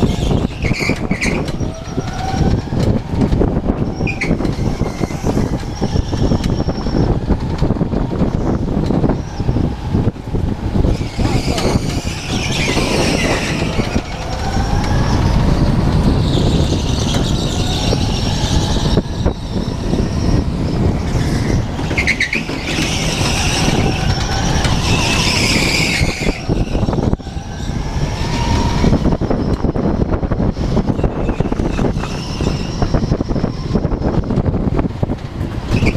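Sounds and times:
tyre squeals: 0.0 - 2.8, 3.8 - 7.3, 10.8 - 29.7, 30.8 - 34.1, 35.7 - 35.9
go-kart engine rumble: 0.0 - 35.9
wind buffeting microphone: 0.0 - 35.9.

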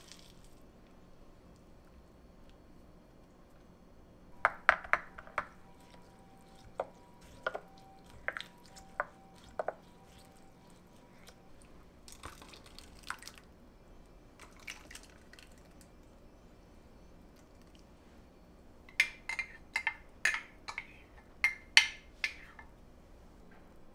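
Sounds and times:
wooden spoon knocking on glass: 4.4 - 5.9, 6.6 - 9.8
liquid pouring and scraping: 5.6 - 13.4.

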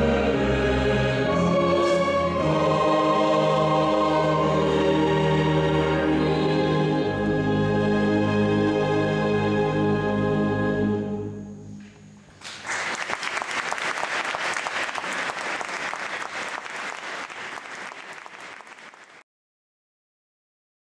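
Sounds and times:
orchestral chord ringing: 0.0 - 11.7
audience applause: 12.4 - 19.2.

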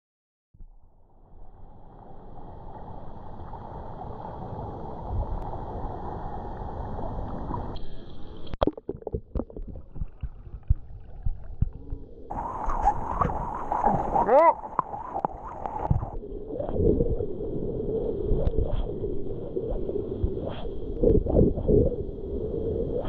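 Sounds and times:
rush of water: 12.3 - 19.0.

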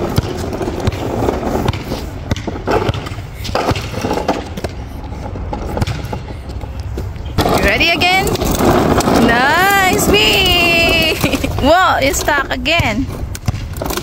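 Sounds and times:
plastic wheels rolling on asphalt: 0.0 - 14.0
wheels knocking on cracks: 5.4 - 14.0.

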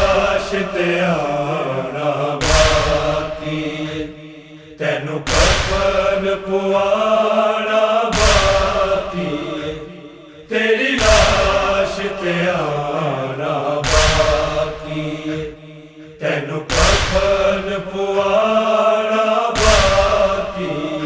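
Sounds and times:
male chorus chanting: 0.0 - 21.0
chest-beating thumps: 8.2 - 8.9, 13.8 - 14.7.

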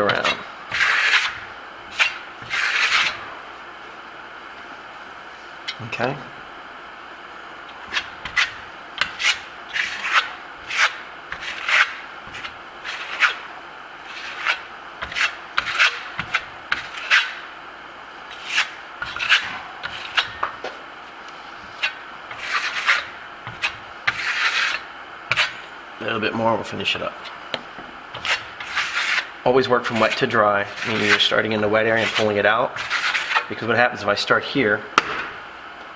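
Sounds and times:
trowel scraping plaster: 0.1 - 3.2, 7.9 - 17.4, 18.3 - 20.4, 21.8 - 25.6, 28.2 - 33.5.

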